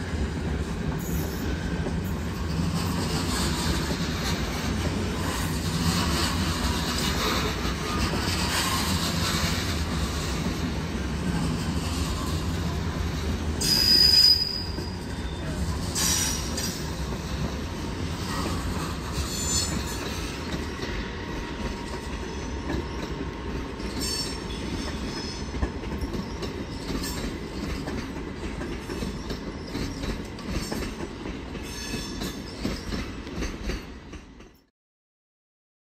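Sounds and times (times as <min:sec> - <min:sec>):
train rumbling over tracks: 0:00.0 - 0:34.7
wheels clacking over rail joints: 0:00.4 - 0:34.6
high-pitched wheel squeals: 0:13.6 - 0:16.8.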